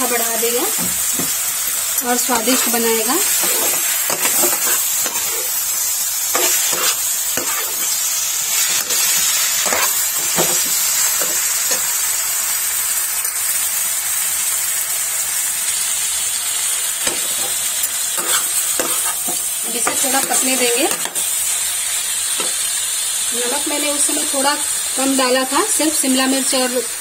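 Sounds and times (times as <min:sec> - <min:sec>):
food sizzling in oil: 0:00.0 - 0:27.0
spatula scraping a pan: 0:02.4 - 0:11.9, 0:18.2 - 0:21.3.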